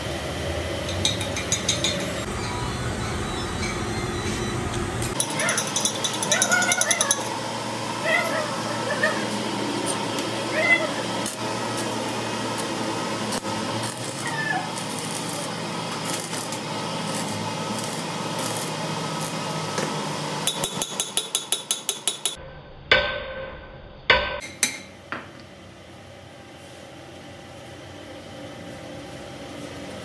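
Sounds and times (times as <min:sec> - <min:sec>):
arc welding crackling: 0:05.1 - 0:22.1.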